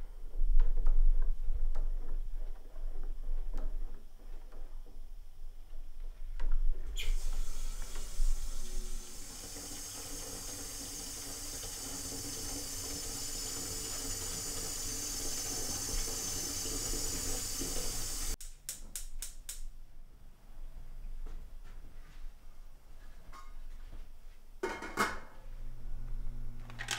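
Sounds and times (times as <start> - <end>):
faucet running water into pot: 7.0 - 18.4.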